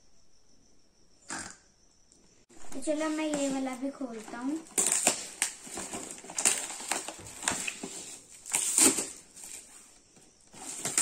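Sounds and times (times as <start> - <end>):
gift wrap tearing and crumpling: 4.2 - 9.7, 10.5 - 11.0.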